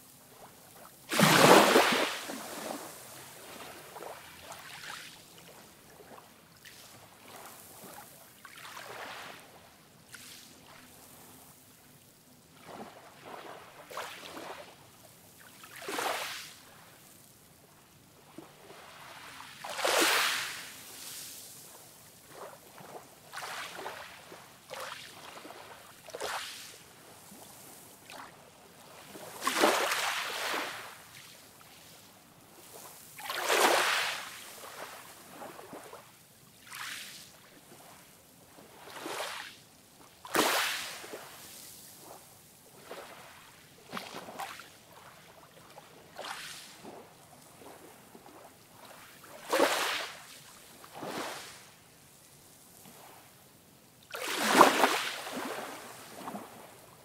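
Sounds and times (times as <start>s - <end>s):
ocean waves washing up beach: 1.1s - 5.8s, 28.8s - 31.2s, 32.6s - 36.0s, 54.1s - 57.0s.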